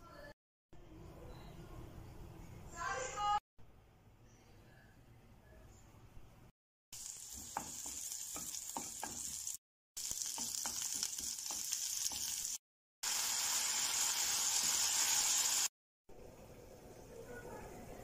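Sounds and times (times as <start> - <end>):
onions sizzling in hot oil: 7.0 - 15.7
wooden spatula scraping wok: 7.2 - 9.6.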